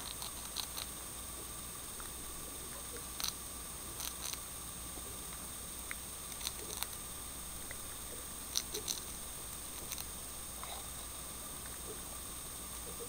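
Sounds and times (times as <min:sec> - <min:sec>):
hamster nibbling clicks: 0:00.0 - 0:00.9, 0:04.0 - 0:04.4, 0:05.8 - 0:07.0, 0:08.5 - 0:10.1.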